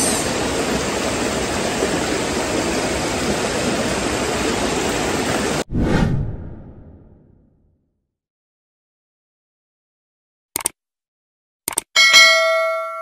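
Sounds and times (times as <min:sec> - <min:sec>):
river water rushing over rocks: 0:00.0 - 0:05.6
outro sound effect: 0:05.7 - 0:07.8.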